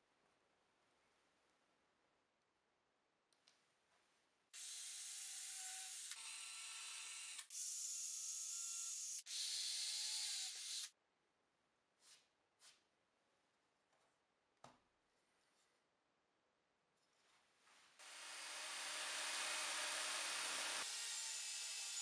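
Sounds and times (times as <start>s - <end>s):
cordless drill drilling into wood: 4.6s - 10.9s, 18.0s - 22.0s.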